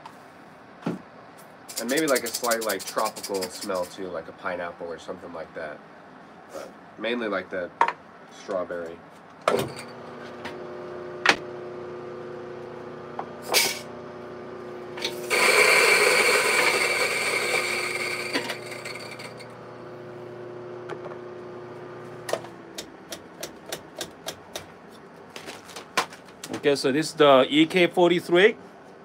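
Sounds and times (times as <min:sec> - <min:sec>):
coffee beans grinding: 0:01.7 - 0:04.0, 0:15.0 - 0:19.8
grinder motor humming: 0:09.6 - 0:23.0.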